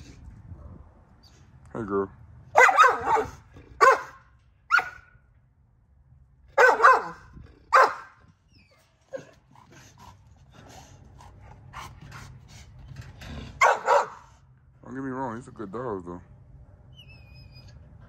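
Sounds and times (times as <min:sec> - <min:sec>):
dog barking: 0:02.5 - 0:05.1, 0:06.6 - 0:08.2, 0:13.6 - 0:14.3.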